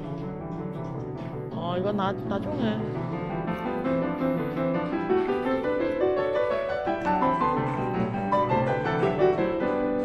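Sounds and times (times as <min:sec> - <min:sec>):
gentle piano music: 0:00.0 - 0:10.0.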